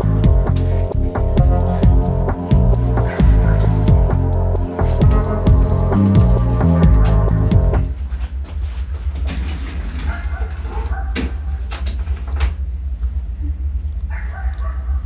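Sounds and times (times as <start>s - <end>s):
music: 0.0s - 8.0s
low steady rumble: 0.0s - 8.1s.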